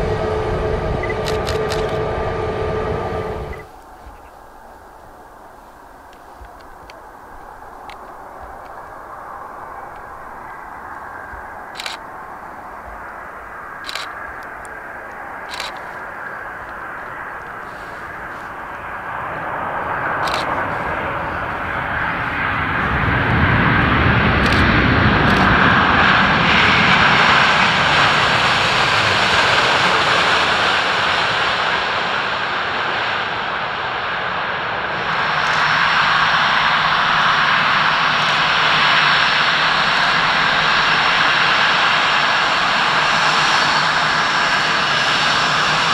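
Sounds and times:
jet engine roar: 0.0 - 45.9
jet whine with low hum: 0.0 - 45.9
sharp clicks: 11.7 - 12.1, 13.8 - 16.0, 20.2 - 20.5, 24.4 - 25.5.

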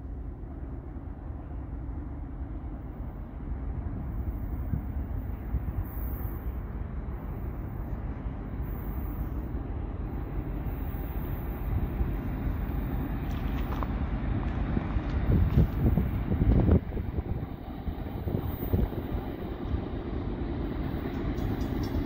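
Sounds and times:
distant freight train: 0.0 - 22.0
wind rumbling on microphone: 11.7 - 22.0.

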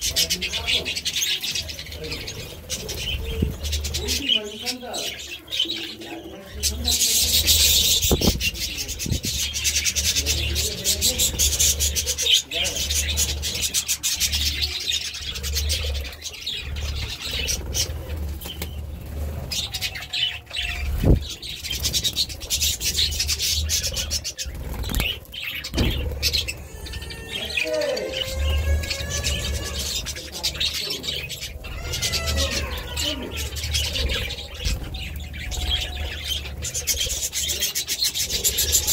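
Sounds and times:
budgerigars chattering: 0.0 - 38.9
wing flaps: 20.8 - 26.6.

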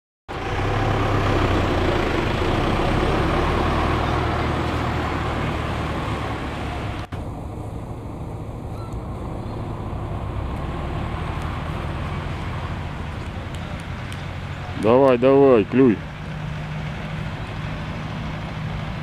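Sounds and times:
road noise: 0.3 - 19.0
vehicle engine hum: 0.3 - 19.0.

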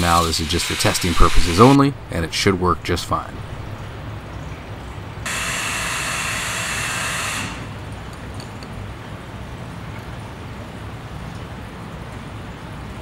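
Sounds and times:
steady hiss: 0.0 - 3.8.

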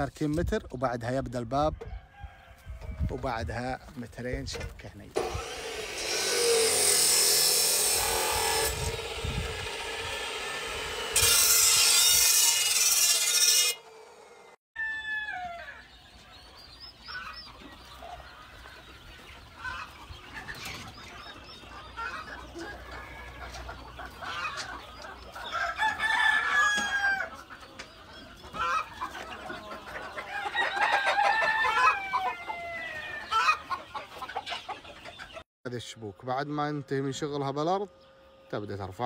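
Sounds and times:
roosters crowing: 1.8 - 3.4, 5.2 - 16.5, 21.7 - 27.5, 28.5 - 34.7
chickens clucking: 15.6 - 35.4.

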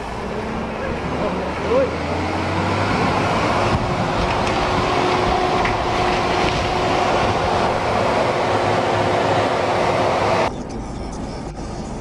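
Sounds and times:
diesel truck engine approaching: 0.0 - 12.0
wind on microphone: 2.9 - 8.3.

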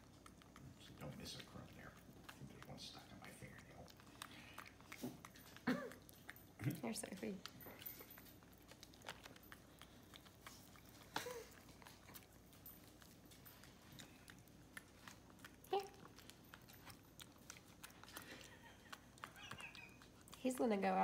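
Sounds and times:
monkey chewing clicks: 0.0 - 21.0
monkey vocal sound: 18.4 - 20.1.

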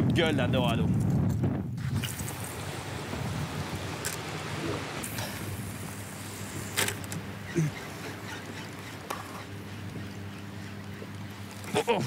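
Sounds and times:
boat motor humming: 1.8 - 12.0.

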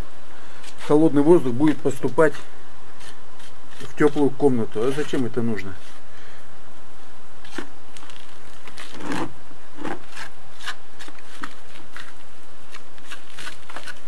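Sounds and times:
spatula scraping mortar on block: 8.8 - 10.8.

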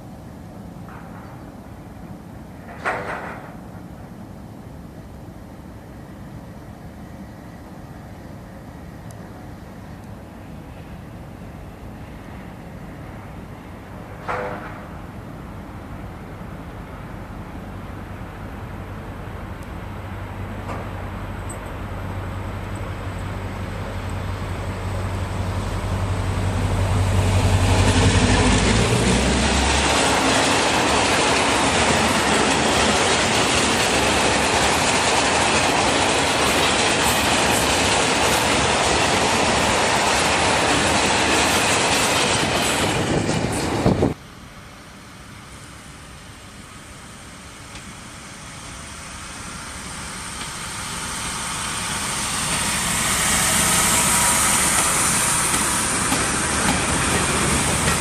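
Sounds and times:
diesel locomotive drone: 0.0 - 58.0
faint diesel engine: 0.1 - 33.5, 43.8 - 58.0
freight wagons clickety-clack: 54.8 - 58.0.

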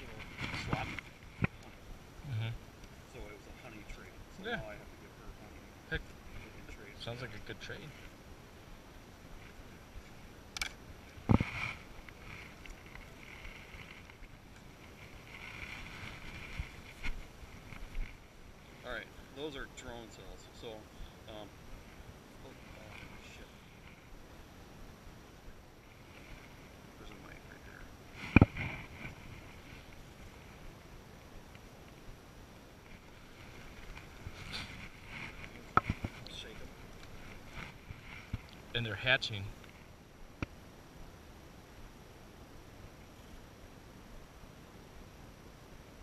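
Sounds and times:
wooden frame scraping: 0.0 - 1.5, 11.2 - 18.2
low steady background: 0.0 - 46.0.

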